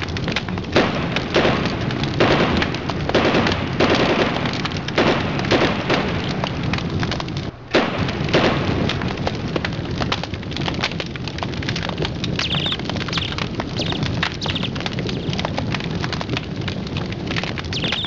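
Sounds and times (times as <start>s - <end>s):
dense crackling and popping: 0.0s - 18.0s.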